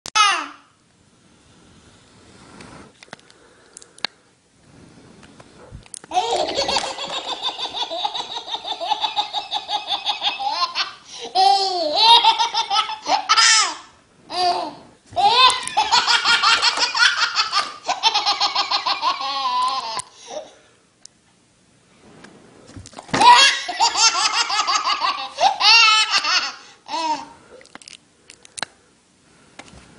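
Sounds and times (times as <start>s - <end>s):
baby laughing: 6.1s - 20.5s, 23.2s - 27.3s.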